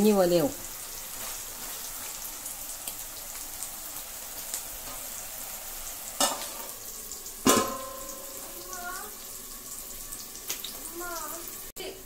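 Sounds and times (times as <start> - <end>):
food sizzling in a pot: 0.0 - 12.0
metal lid clanking on pot: 7.4 - 8.4.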